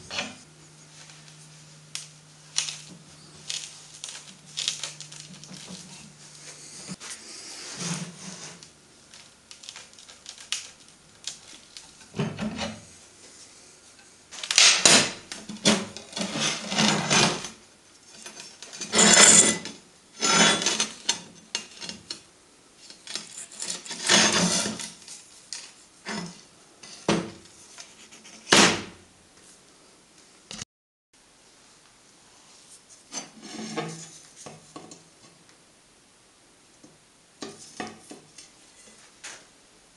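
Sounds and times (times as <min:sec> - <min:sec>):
metal scraping and grinding: 0:14.9 - 0:22.1, 0:22.9 - 0:25.0, 0:33.1 - 0:34.2.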